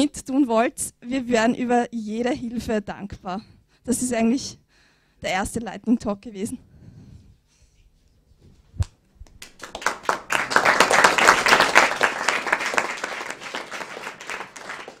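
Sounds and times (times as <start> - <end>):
small crowd clapping: 9.2 - 15.0.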